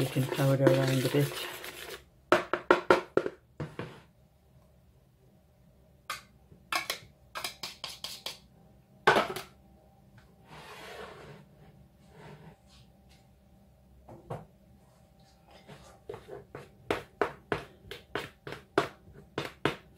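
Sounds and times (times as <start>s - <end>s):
soft scraping rustle: 10.4s - 13.3s.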